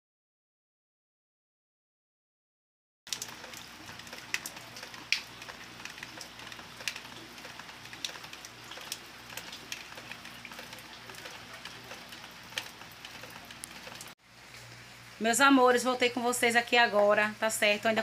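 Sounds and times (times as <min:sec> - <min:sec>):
heavy rain falling: 0:03.1 - 0:15.8.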